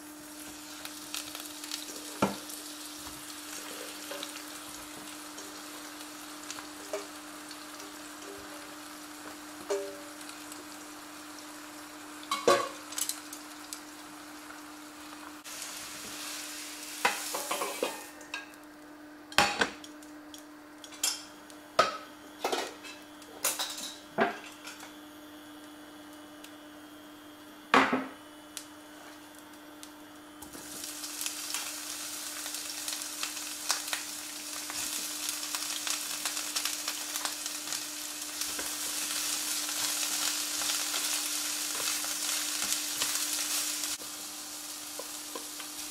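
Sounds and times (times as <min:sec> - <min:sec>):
peppers sizzling in oil: 0:00.0 - 0:45.9
steady hum: 0:00.0 - 0:45.9
metal bowl and utensils clinking: 0:17.1 - 0:18.5.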